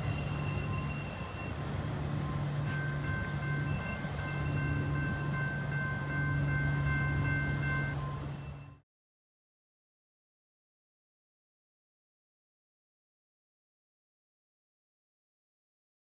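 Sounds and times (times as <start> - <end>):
freight train wheels rumbling: 0.0 - 8.8.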